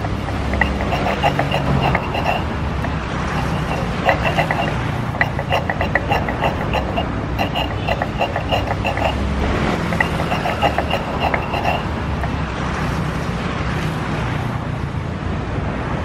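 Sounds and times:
paste grinding in stone dish: 0.0 - 12.5
street traffic rumble: 0.0 - 16.0.

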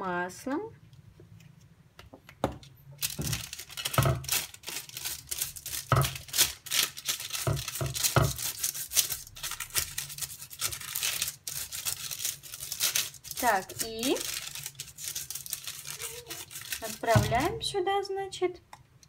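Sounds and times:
parchment paper rustling: 3.0 - 17.7.

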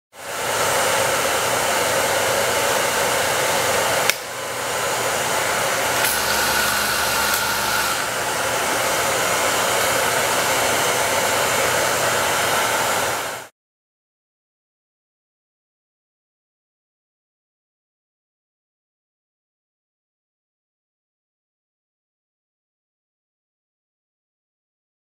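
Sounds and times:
loud hiss: 5.8 - 13.5.

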